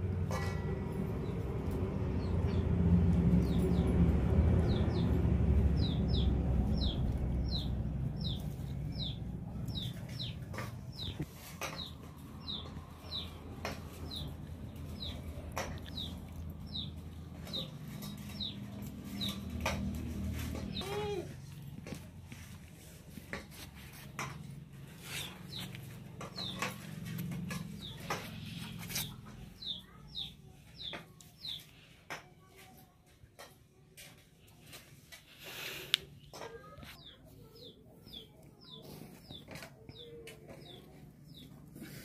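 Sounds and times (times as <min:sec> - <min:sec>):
low rumble: 0:00.0 - 0:10.2
bird chirping: 0:04.6 - 0:19.7.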